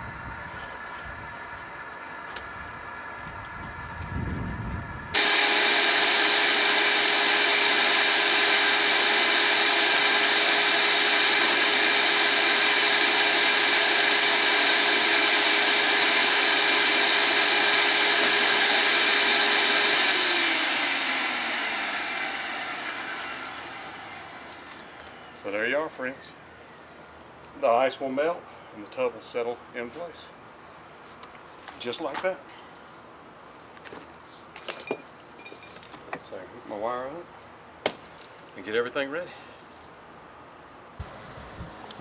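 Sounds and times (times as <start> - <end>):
shop vacuum motor whining: 0.4 - 25.3, 41.0 - 42.0.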